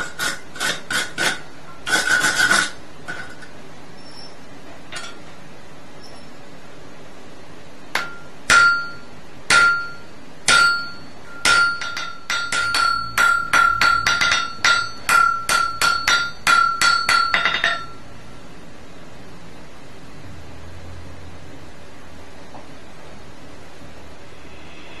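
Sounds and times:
hammer striking steel: 7.9s - 18.0s.

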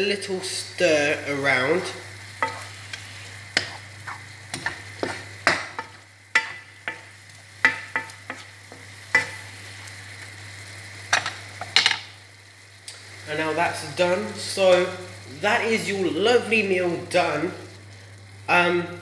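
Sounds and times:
frying sizzle: 0.0s - 19.0s
wooden spoon scraping pan: 3.6s - 7.0s, 7.7s - 9.4s.

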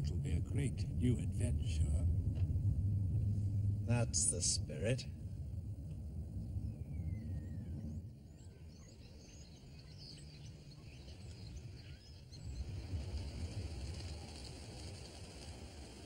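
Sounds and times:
car rumbling: 0.0s - 8.0s
birds chirping: 6.2s - 13.0s.

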